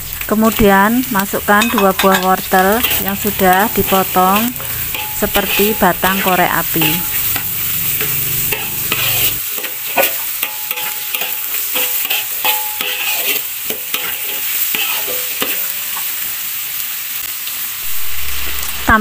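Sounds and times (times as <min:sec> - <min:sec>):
food sizzling in a wok: 0:00.0 - 0:19.0
metal spatula scraping a pan: 0:01.6 - 0:15.8.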